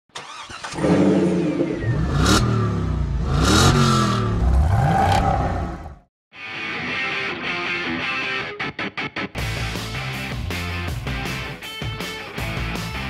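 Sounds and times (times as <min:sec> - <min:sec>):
car engine revving: 0:00.2 - 0:06.1.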